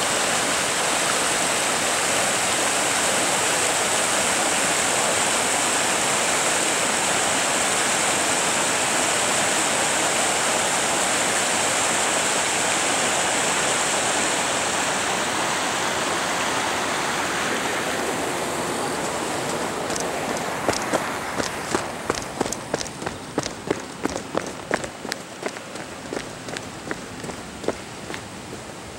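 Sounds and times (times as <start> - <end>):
river rushing: 0.0 - 28.9
footsteps on gravel: 19.1 - 28.7.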